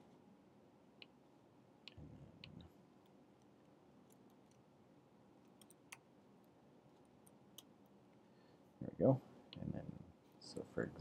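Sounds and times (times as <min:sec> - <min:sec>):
mouse and keyboard clicks: 0:05.4 - 0:06.1.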